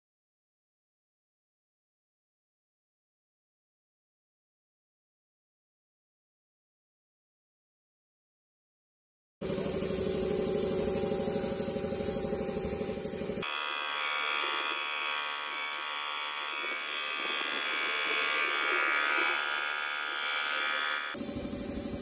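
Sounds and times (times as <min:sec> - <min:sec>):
spray gun air hissing: 0:09.4 - 0:13.5
spray gun buzzing: 0:09.4 - 0:22.0.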